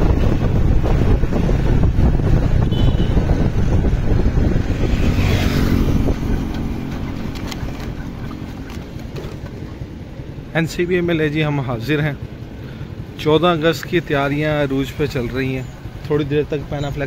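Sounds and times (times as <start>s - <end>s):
motorbike engine running: 0.0s - 10.5s
wind rushing over microphone: 0.0s - 10.5s.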